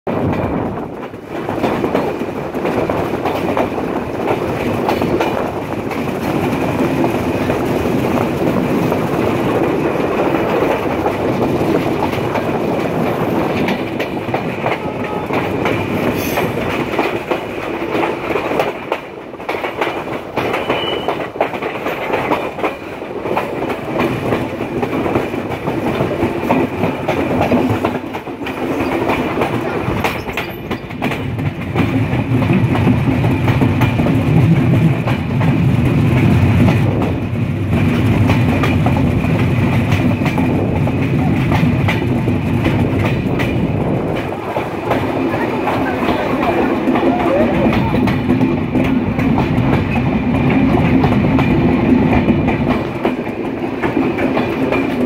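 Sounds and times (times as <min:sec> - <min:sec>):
train rumbling: 0:00.1 - 0:55.0
wheels clacking over rails: 0:00.1 - 0:55.0.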